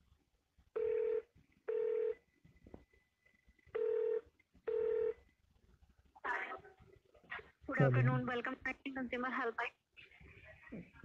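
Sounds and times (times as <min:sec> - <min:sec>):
telephone ringback tone: 0:00.8 - 0:02.2, 0:03.8 - 0:05.2.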